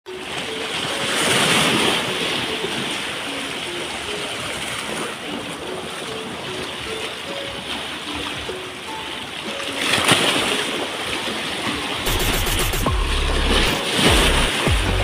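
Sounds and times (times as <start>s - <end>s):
waves breaking on rocks: 0.2s - 12.1s.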